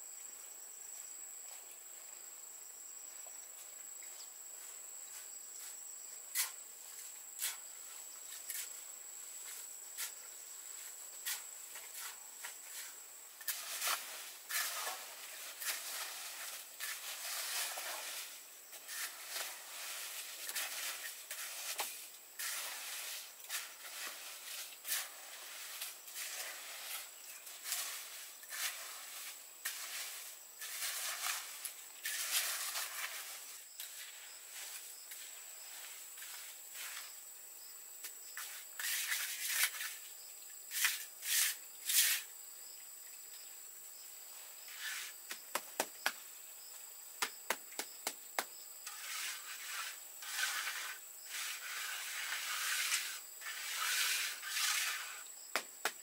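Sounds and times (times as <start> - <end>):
high insect whine: 0.0 - 56.0
trowel scraping wet concrete: 6.3 - 6.6, 11.2 - 37.1, 38.4 - 40.1, 40.7 - 42.3, 44.7 - 45.2, 48.8 - 56.0.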